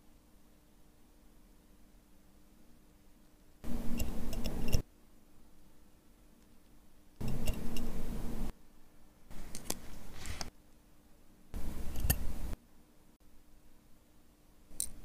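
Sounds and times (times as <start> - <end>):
tweezers clicking and scraping metal: 3.9 - 4.8, 7.2 - 7.9, 11.9 - 12.3.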